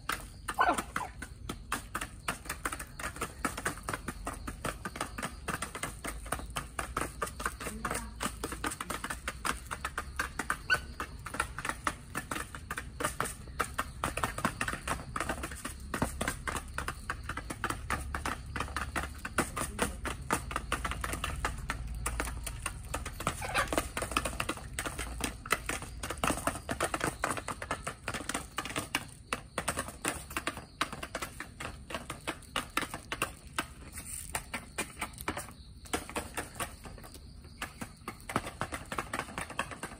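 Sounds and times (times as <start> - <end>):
chickens pecking feed: 0.0 - 39.9.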